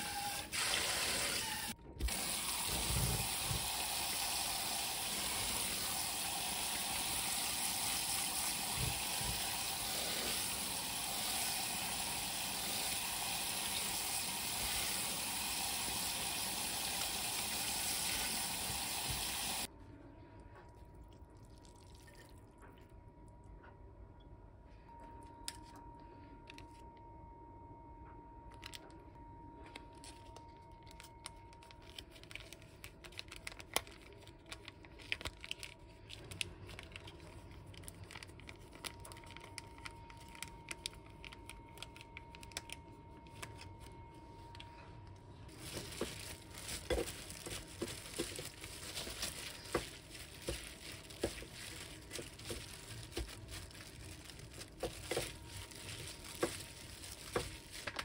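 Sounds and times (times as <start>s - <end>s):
plastic packet crinkling and tearing: 28.5s - 28.9s, 29.7s - 44.0s, 45.5s - 58.0s
plastic glove crackling: 30.0s - 43.9s, 45.5s - 58.0s.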